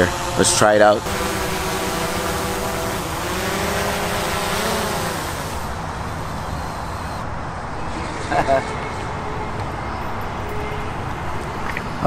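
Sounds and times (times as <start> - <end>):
drone propellers buzzing: 0.0 - 7.3.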